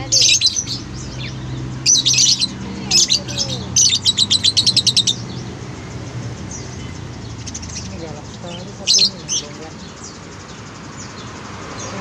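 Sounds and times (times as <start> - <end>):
lovebirds chirping shrilly: 0.0 - 12.0.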